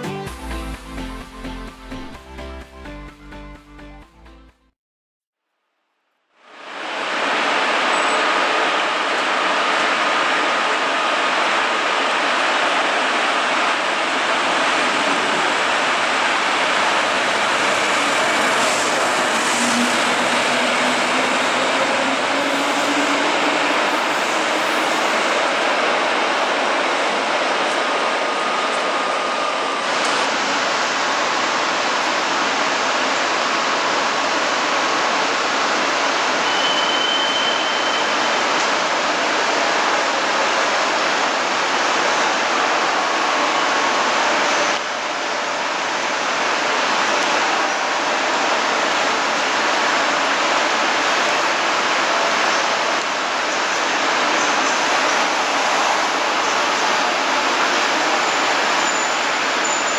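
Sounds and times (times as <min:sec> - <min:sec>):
electric locomotive hum: 0:06.7 - 0:36.7
train wheels rolling on rails: 0:07.0 - 0:59.9.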